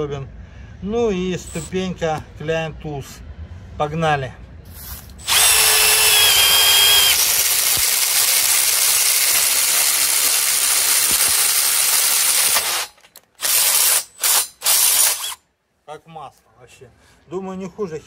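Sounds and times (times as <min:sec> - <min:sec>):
impact driver hammering through steel: 0:05.2 - 0:15.4
impact driver trigger bursts: 0:05.2 - 0:15.4.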